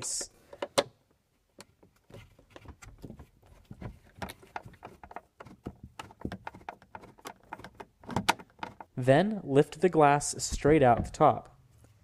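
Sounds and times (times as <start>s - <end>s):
screwdriver clicking and scraping: 4.1s - 8.9s.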